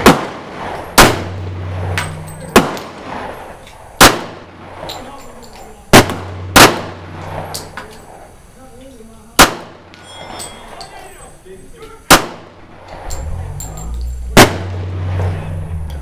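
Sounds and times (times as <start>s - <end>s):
distant gunshots: 0.0s - 4.9s, 5.9s - 7.8s, 9.4s - 9.9s, 12.1s - 13.1s, 14.3s - 15.5s
pistol shots with echo: 0.0s - 5.0s, 5.9s - 7.8s, 9.4s - 10.0s, 12.1s - 13.1s, 14.4s - 15.3s.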